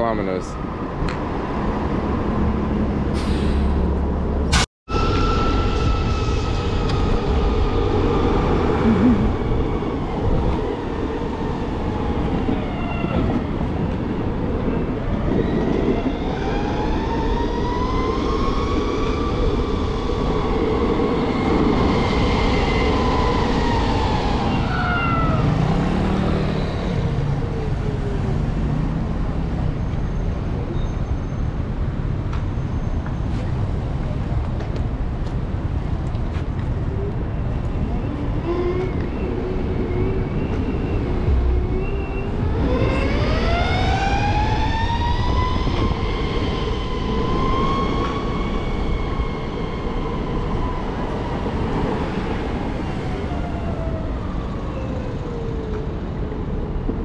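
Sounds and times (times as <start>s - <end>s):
wind rushing: 38.3s - 54.6s.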